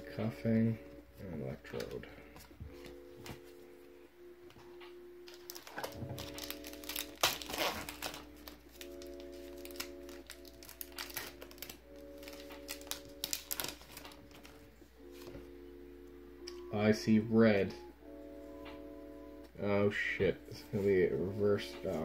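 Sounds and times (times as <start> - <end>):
soft background music: 0.0 - 22.0
foil wrapper crinkling: 5.2 - 15.4.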